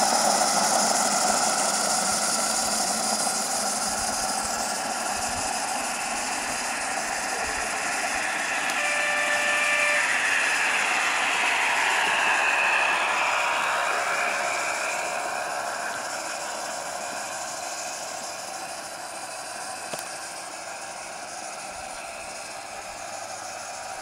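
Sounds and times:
steam hiss: 0.0s - 24.0s
steam whistle: 5.4s - 16.6s.

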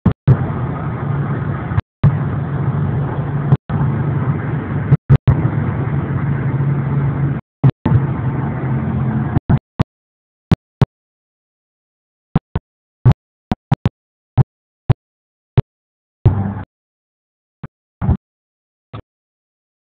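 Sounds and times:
car cabin engine and road hum: 0.0s - 9.9s.

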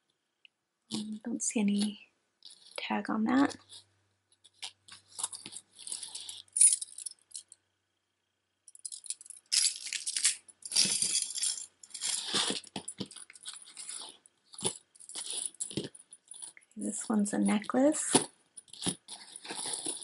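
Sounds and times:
metal necklace jangling and clinking: 4.4s - 7.6s, 8.7s - 20.0s.

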